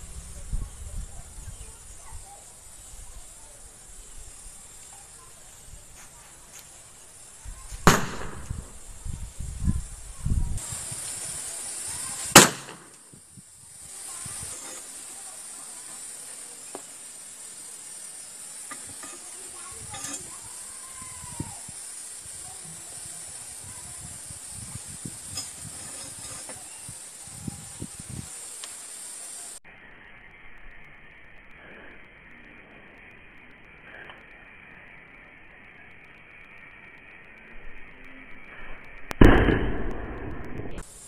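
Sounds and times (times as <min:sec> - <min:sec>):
steady hiss: 0:00.0 - 0:41.0
sharp gunshots: 0:07.8 - 0:08.8, 0:12.3 - 0:13.0, 0:39.2 - 0:40.8.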